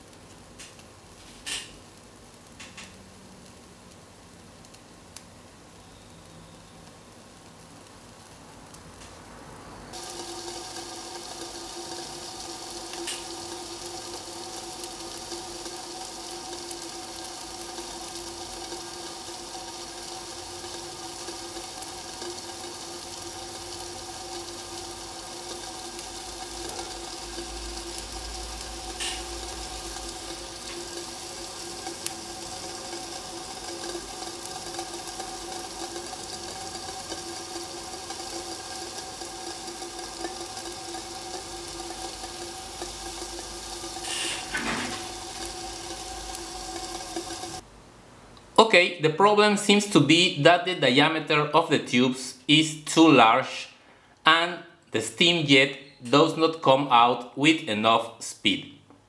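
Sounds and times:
steam hissing: 0:09.2 - 0:47.6.

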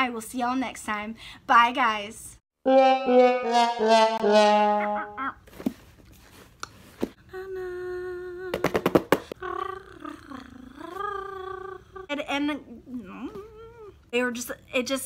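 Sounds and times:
brass fanfare: 0:02.6 - 0:05.2
woman humming: 0:07.2 - 0:14.0.

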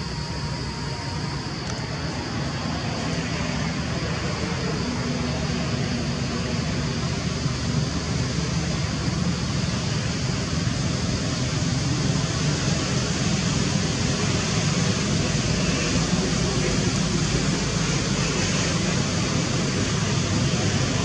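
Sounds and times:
low hum: 0:00.0 - 0:13.2
loud background noise: 0:00.0 - 0:21.0.

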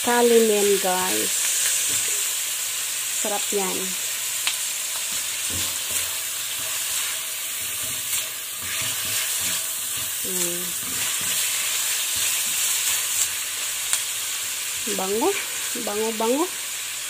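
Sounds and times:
chicken and onion sizzling in oil: 0:00.0 - 0:17.0
spatula scraping a pan: 0:05.0 - 0:13.6.

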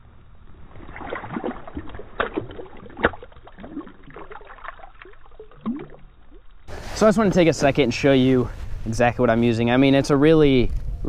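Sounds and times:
water splashing and gurgling: 0:00.4 - 0:06.7
fish slapping water: 0:00.5 - 0:06.5.

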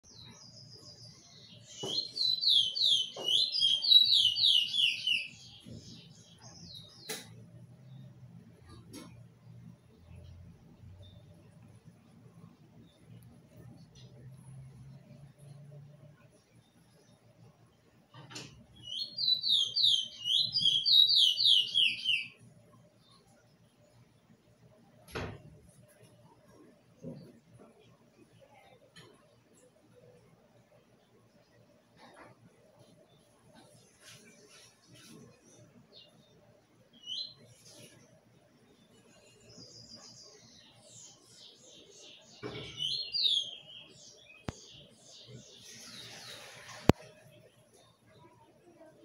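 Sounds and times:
songbird singing: 0:00.0 - 0:24.8, 0:32.8 - 0:48.4
finch singing: 0:00.1 - 0:07.3, 0:18.8 - 0:22.4, 0:39.1 - 0:46.6.

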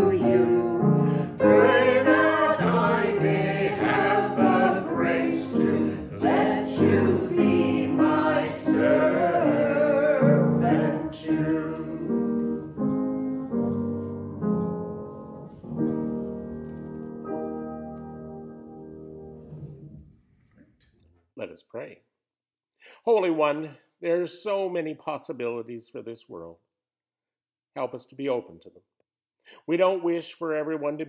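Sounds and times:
voices singing a hymn: 0:00.0 - 0:13.0
upright piano: 0:00.0 - 0:20.0.

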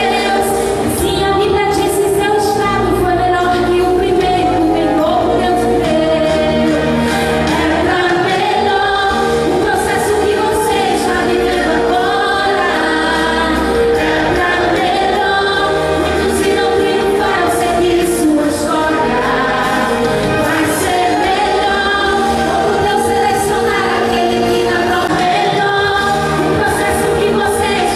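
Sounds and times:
backing music with bass line: 0:00.0 - 0:27.9
woman singing gospel song: 0:00.0 - 0:27.9.

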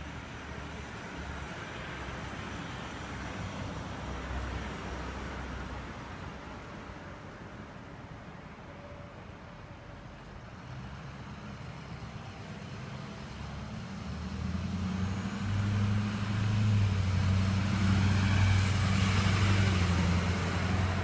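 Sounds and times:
vehicle engine hum: 0:08.4 - 0:21.0.

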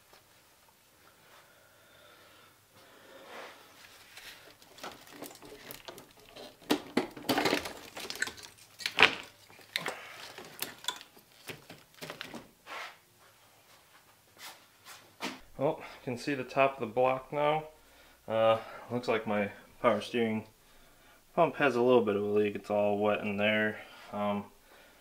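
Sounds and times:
engine parts clattering and rattling: 0:04.4 - 0:12.4.

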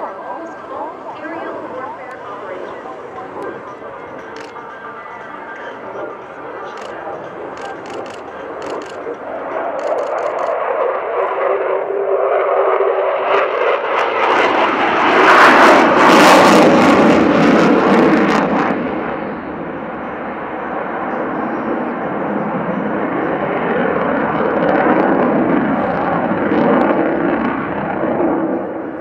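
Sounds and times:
jet engine roar: 0:00.0 - 0:29.0.

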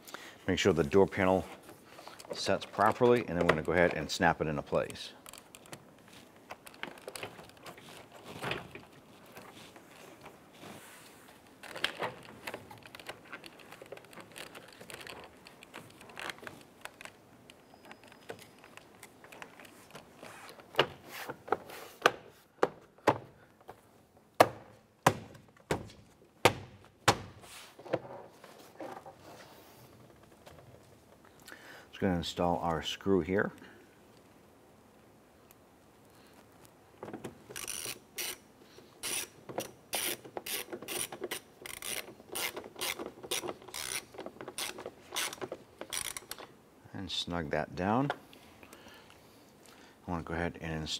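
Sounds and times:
handling rustle: 0:00.5 - 0:22.5.

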